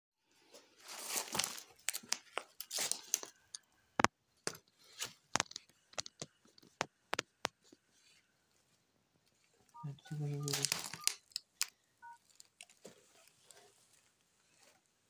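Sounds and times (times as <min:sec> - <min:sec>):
twigs rustling and snapping: 0:00.8 - 0:07.8, 0:10.4 - 0:14.2.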